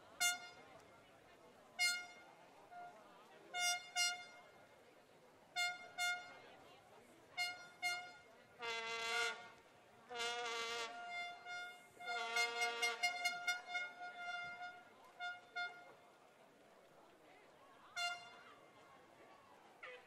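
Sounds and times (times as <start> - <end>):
low horn blasts: 0.2 - 0.8, 7.4 - 16.0, 18.0 - 18.6.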